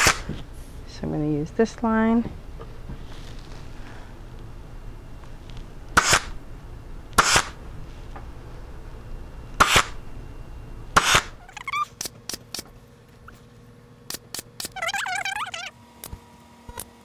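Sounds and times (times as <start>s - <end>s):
pneumatic staple gun firing: 0.0s - 0.3s, 6.0s - 6.4s, 7.2s - 7.6s, 9.6s - 10.0s, 11.0s - 11.4s.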